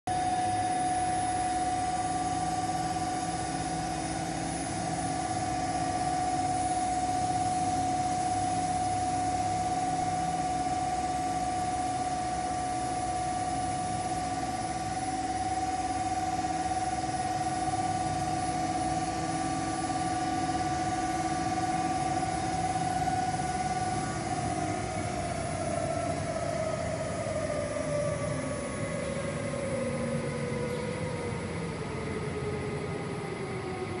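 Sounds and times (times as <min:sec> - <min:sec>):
machine hum: 0:00.1 - 0:34.0
machine whine: 0:00.1 - 0:34.0.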